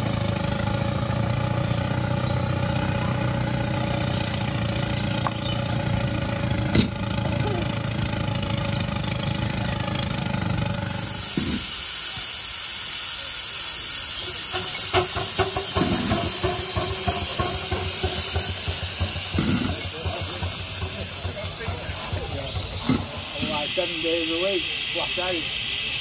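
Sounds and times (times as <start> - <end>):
steam hissing: 0.0 - 26.0
mechanical running with light hiss: 10.8 - 26.0.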